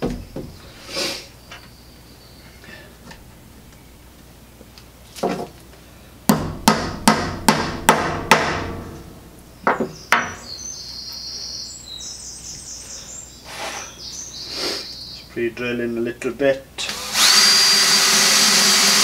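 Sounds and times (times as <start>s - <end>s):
hammer striking metal and wood: 6.3s - 10.5s.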